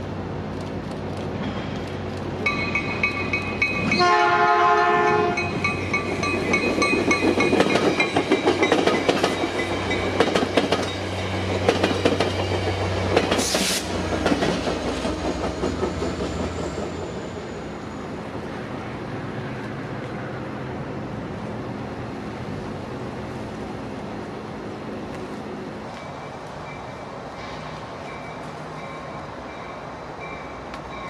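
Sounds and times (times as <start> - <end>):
train horn: 3.9 - 5.5.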